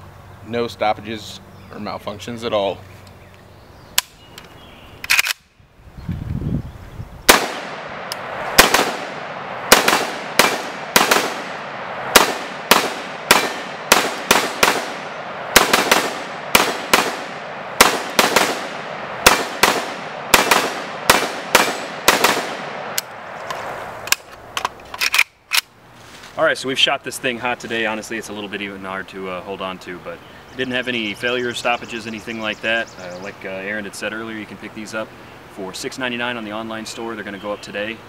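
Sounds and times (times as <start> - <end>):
rifle shots with echo: 7.3 - 23.4.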